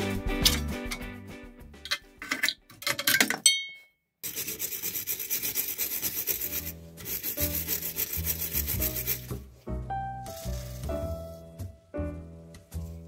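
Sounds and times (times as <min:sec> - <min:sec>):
wire brush scrubbing metal: 0:04.2 - 0:09.4.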